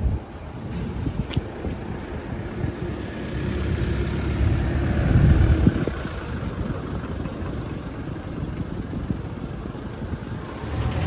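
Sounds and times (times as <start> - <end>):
vehicle engine passing by: 2.2 - 8.3, 10.2 - 11.0.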